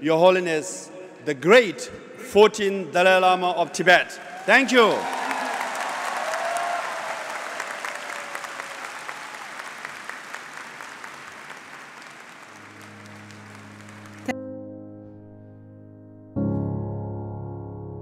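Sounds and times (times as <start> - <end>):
audience applauding: 4.2 - 14.3
sustained music chords: 12.6 - 18.0.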